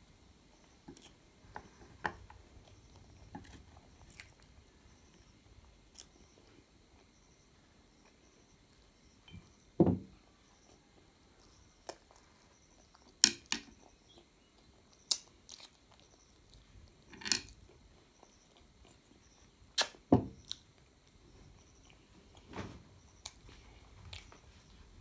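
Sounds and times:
lip smacks and mouth clicks: 19.8 - 20.0.

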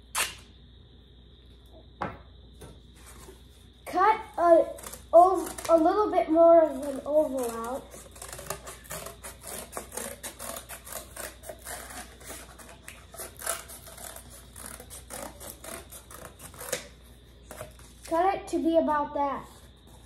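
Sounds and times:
scissors cutting cardboard: 4.4 - 18.1.

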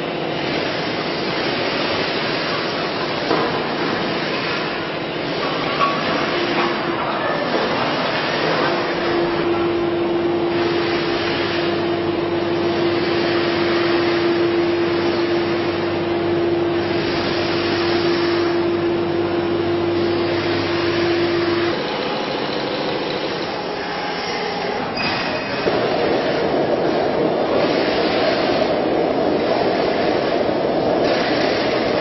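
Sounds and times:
electric hoist whining hum: 0.0 - 32.0
machinery noise: 0.0 - 32.0.

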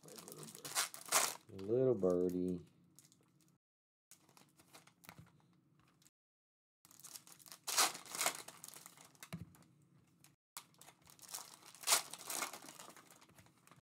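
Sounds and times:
foil wrapper crinkling: 0.0 - 3.5, 6.9 - 9.6, 10.6 - 13.8.

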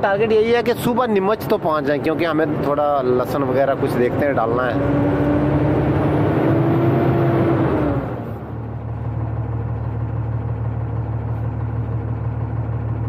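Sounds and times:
truck engine and road noise: 0.0 - 13.0
low hum: 5.2 - 13.0.

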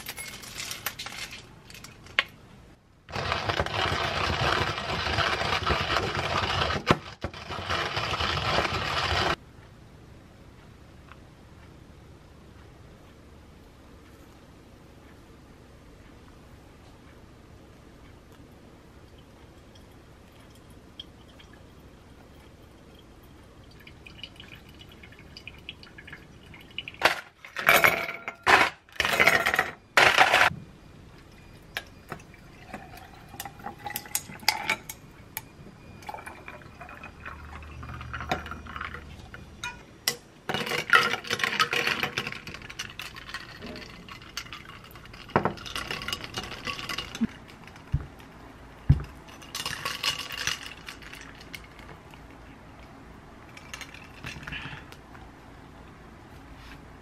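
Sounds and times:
glass and ice clinking: 0.0 - 2.0, 31.8 - 35.0, 36.0 - 48.0, 48.9 - 51.8, 53.5 - 54.7
coffee pouring over ice: 36.0 - 39.1.

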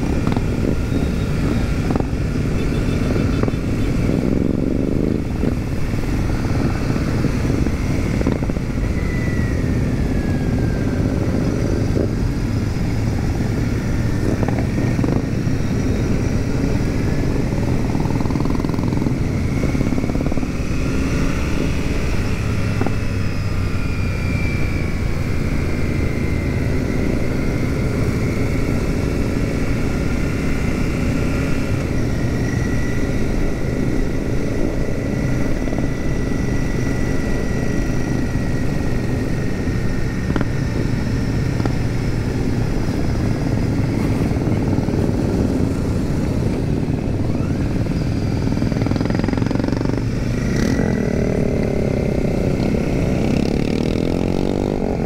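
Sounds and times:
motorcycle engines cruising: 0.0 - 55.0
road and wind noise: 0.0 - 55.0.

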